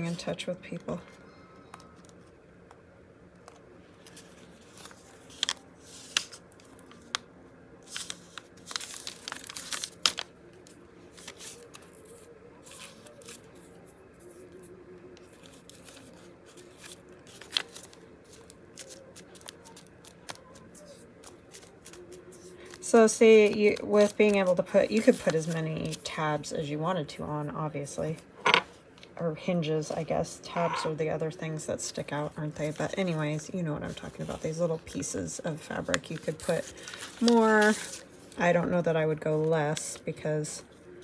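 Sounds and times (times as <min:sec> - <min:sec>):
paper rustling and crinkling: 0:03.4 - 0:07.2, 0:07.8 - 0:26.2, 0:32.1 - 0:41.0.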